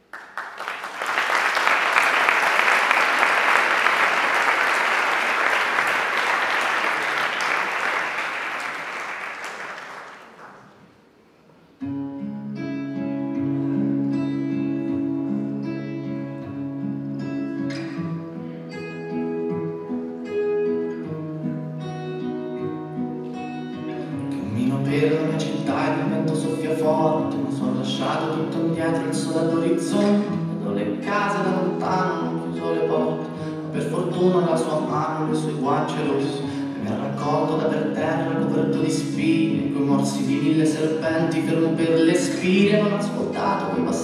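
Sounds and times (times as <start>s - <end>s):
audience applause: 0.0s - 10.8s
slow guitar notes: 11.8s - 40.4s.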